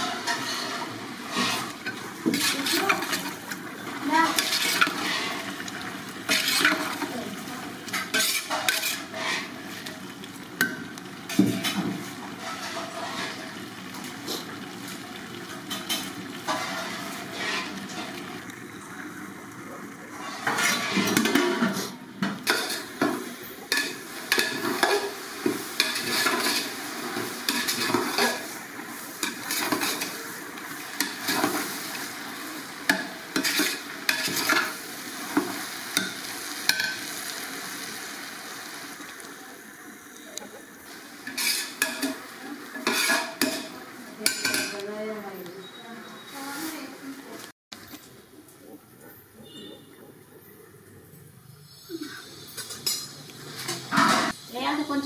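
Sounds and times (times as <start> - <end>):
ladle scraping and clinking pot: 0.0 - 3.4, 4.3 - 5.7, 6.3 - 7.0, 7.9 - 9.6, 12.4 - 13.6, 15.7 - 18.2, 20.2 - 23.1, 23.7 - 28.5, 29.2 - 30.2, 32.9 - 34.8, 41.2 - 42.2, 42.8 - 44.8
frying sizzle: 0.0 - 48.7, 51.3 - 55.0.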